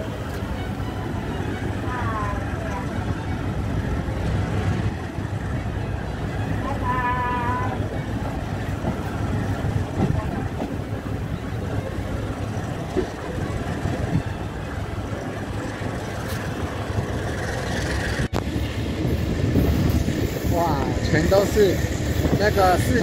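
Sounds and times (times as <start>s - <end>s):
train running on rails: 0.0s - 23.0s.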